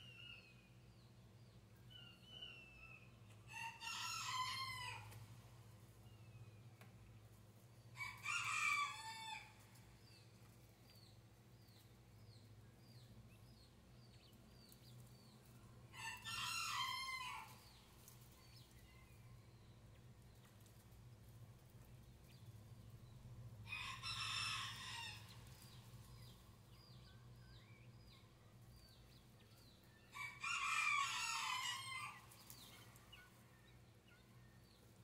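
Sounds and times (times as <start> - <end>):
rooster crowing: 3.5 - 5.1, 8.0 - 9.6, 16.0 - 17.5, 23.7 - 25.4, 30.1 - 32.2.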